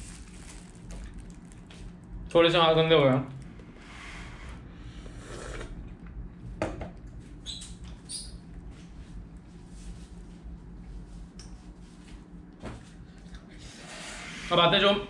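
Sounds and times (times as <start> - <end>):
paper tissue rustling: 0.0 - 1.9.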